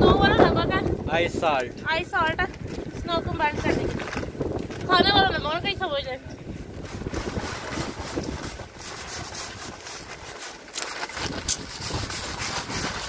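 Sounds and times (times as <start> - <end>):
wind buffeting microphone: 0.0 - 10.4, 11.0 - 13.0
plastic bag crinkles: 6.7 - 13.0
salt shaken from plastic bag: 6.8 - 13.0.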